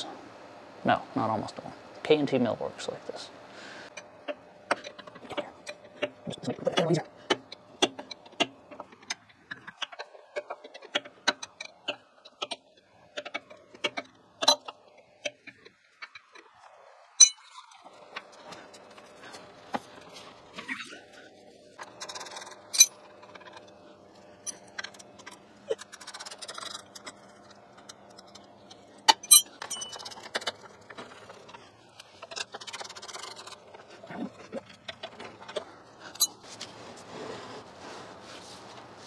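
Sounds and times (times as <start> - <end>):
tools and steel parts clinking: 17.2 - 17.8, 21.9 - 23.7, 29.1 - 30.5, 36.1 - 36.4.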